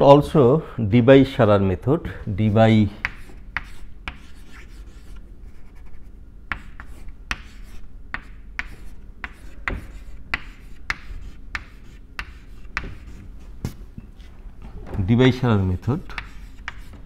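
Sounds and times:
chalk tapping and scraping on chalkboard: 3.0 - 13.3, 15.9 - 17.0.

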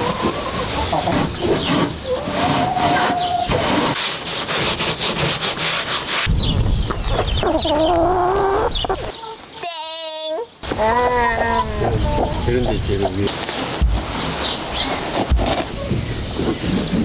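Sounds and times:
paintbrush scrubbing wood: 0.0 - 6.3, 13.3 - 17.0.

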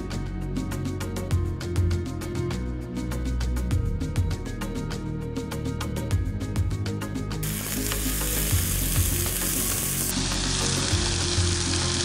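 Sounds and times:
food sizzling in a pot: 7.4 - 12.0.

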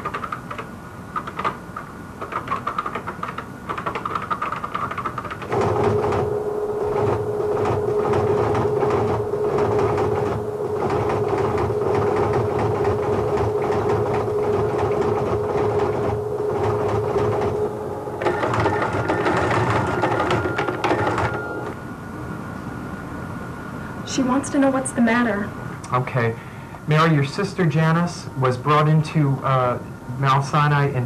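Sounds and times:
teleprinter clattering: 0.0 - 21.8
steady hum: 0.0 - 31.0
high steady tone: 5.5 - 21.8.

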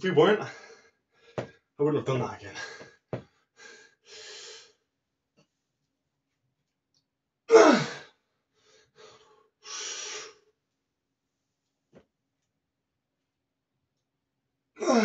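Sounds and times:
man breathing hard: 2.6 - 4.8.

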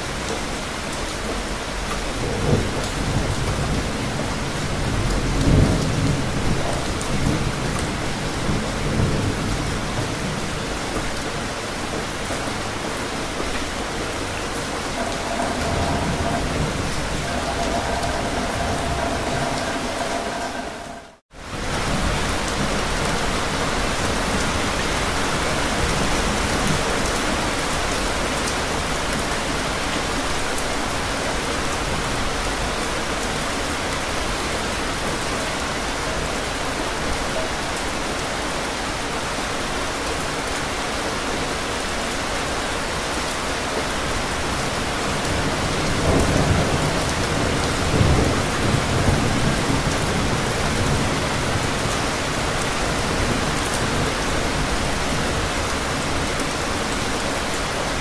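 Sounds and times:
steady rain falling: 0.0 - 58.0
low thunder rumbling: 14.6 - 22.7.

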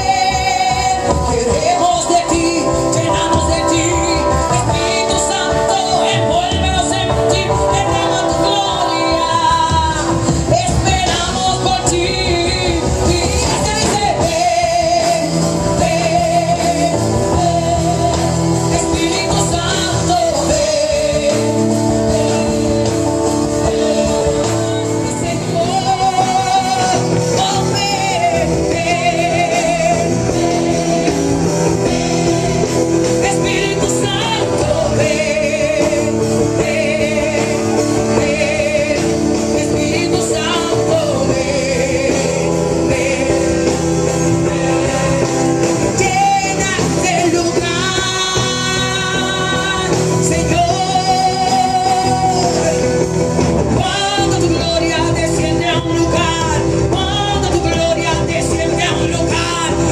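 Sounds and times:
drums: 0.0 - 59.9
electric guitar: 0.0 - 59.9
live praise band with singers: 0.0 - 59.9.

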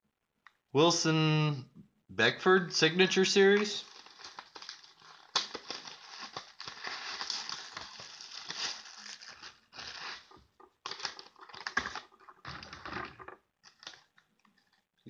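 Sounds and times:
packaging crinkling and rustling: 3.4 - 14.9.

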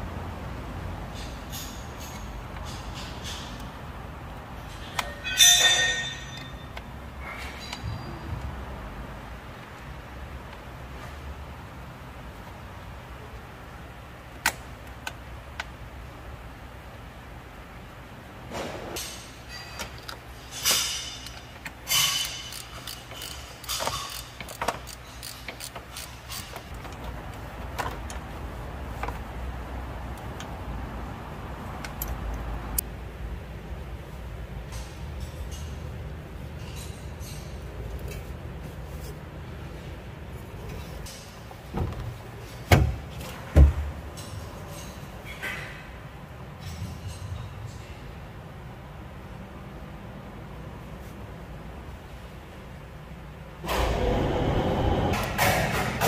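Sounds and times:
metal tools clanking and scraping: 1.1 - 3.8, 4.6 - 8.2, 19.0 - 27.2, 34.7 - 38.4, 44.1 - 45.9, 46.6 - 48.0
ringing metallic clatters: 4.6 - 8.1, 19.1 - 26.6
steady low hum: 45.9 - 56.0
steady low rumble: 53.6 - 56.0.

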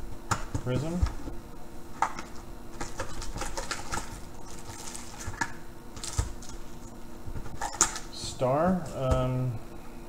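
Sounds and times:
foil packs crinkling: 2.2 - 6.9.

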